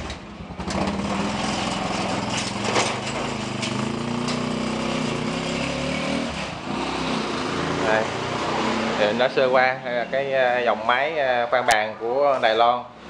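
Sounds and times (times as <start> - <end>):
small motorbike engine: 0.0 - 8.8.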